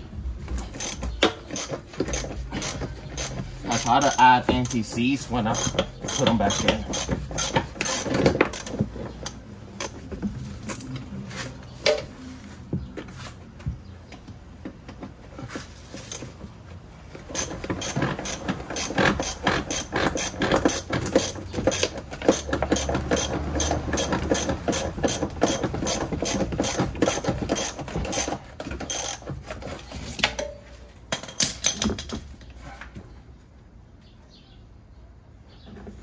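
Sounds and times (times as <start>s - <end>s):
ratchet wrench clicking: 0.6s - 10.0s, 17.3s - 29.2s.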